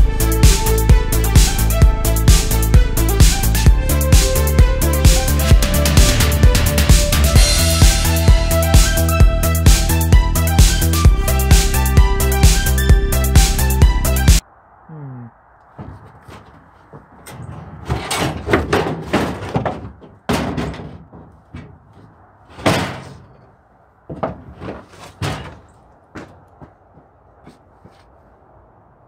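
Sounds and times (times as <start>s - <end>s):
metal toolbox clunking and knocking: 15.8s - 23.5s, 24.1s - 25.8s.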